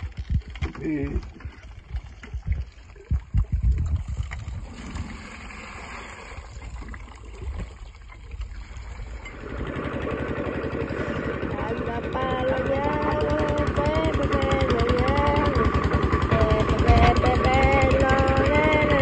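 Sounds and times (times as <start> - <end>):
stationary engine running: 8.8 - 19.0.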